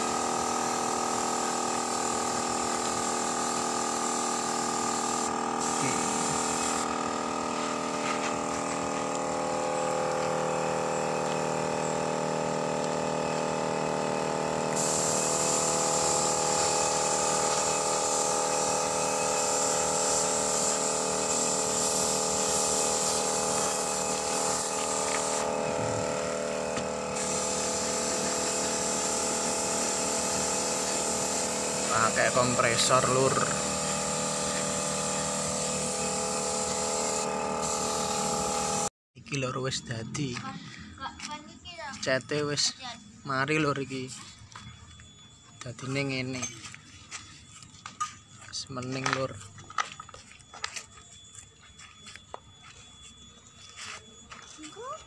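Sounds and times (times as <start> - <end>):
spray gun hissing: 0.0 - 12.2, 13.0 - 38.9
air compressor humming: 0.0 - 38.9.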